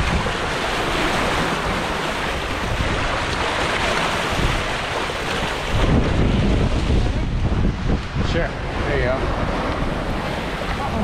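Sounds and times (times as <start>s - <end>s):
sea water churning along hull: 0.0s - 11.0s
wind buffeting microphone: 0.0s - 11.0s.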